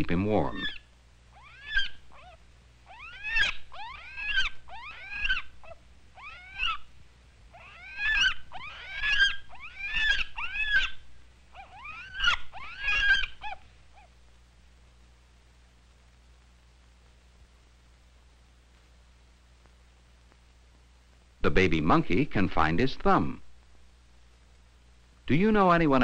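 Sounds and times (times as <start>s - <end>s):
baby monkey crying: 0.4s - 6.9s, 7.5s - 14.2s.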